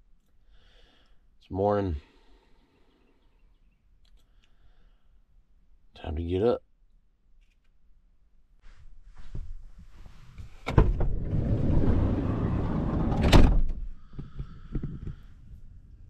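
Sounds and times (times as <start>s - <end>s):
door thud: 10.6s - 11.3s, 12.9s - 13.8s
sliding door running on track: 10.7s - 13.7s.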